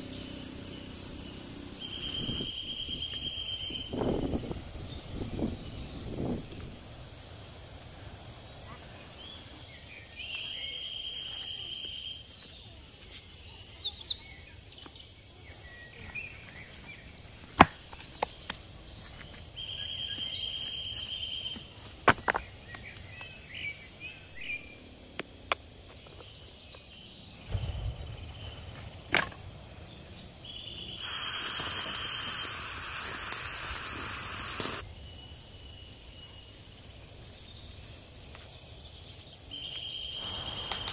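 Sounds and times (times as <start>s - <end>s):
insect chorus: 0.0s - 40.9s
rushing hiss: 27.4s - 34.9s, 40.2s - 40.9s.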